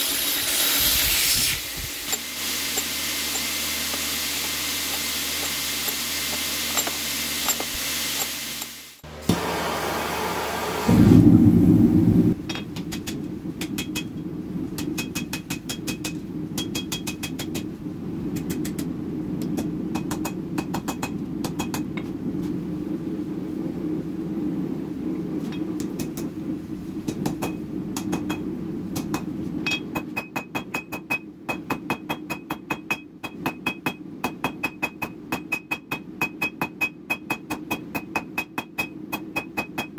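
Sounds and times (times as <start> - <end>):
steady low hum: 1.8 - 31.8
short loud burst: 9.2 - 12.4.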